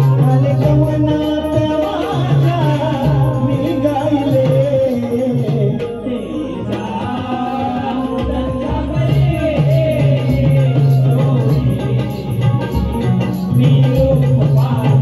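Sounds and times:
man singing through a microphone: 0.0 - 15.0.

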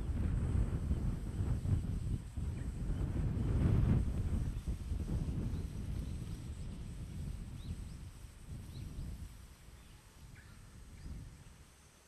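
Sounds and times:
bird chirps: 9.8 - 11.6.

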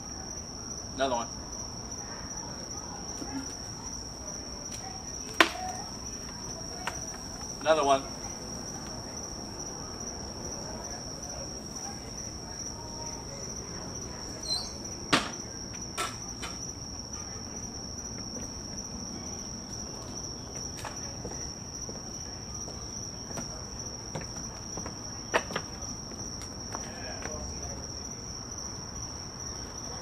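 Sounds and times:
night insects trilling: 0.0 - 30.0
acorns knocking on wooden deck: 15.1 - 16.6, 24.1 - 25.8.

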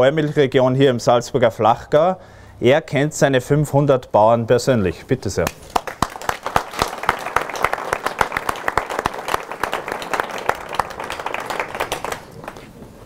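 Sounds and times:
small group applauding: 5.5 - 12.7.

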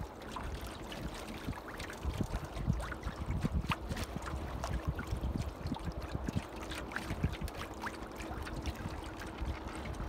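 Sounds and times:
water gurgling along boat hull: 0.0 - 10.0.

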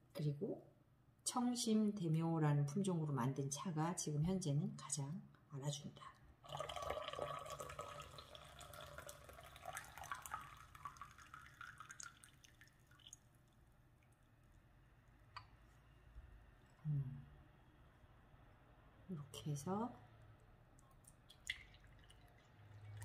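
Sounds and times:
tea pouring into glass: 6.4 - 14.6, 21.1 - 23.0.

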